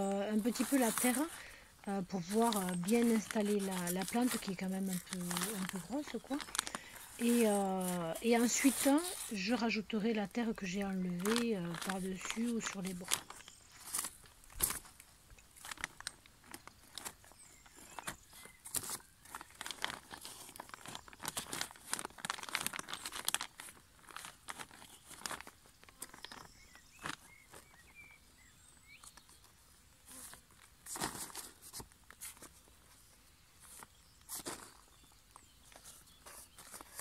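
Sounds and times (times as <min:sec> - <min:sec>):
scraping wet soil: 0:00.0 - 0:14.8
plastic liner crinkling: 0:00.0 - 0:28.2, 0:30.1 - 0:37.0.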